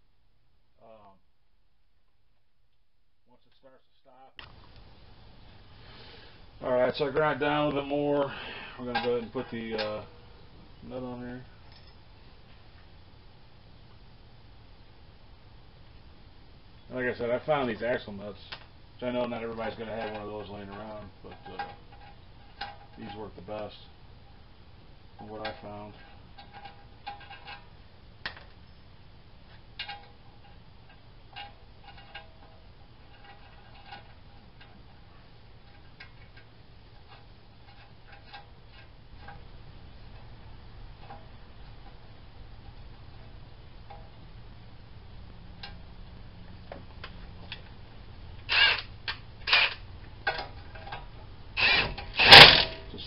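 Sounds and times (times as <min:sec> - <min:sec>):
hand tools rattling: 0:48.5 - 0:53.0.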